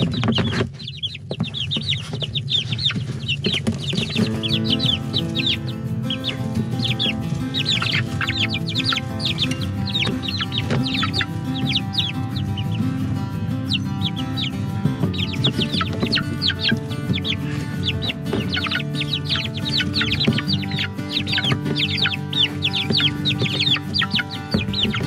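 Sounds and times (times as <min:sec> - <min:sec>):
chicks peeping: 0:00.0 - 0:25.0
background music: 0:03.6 - 0:25.0.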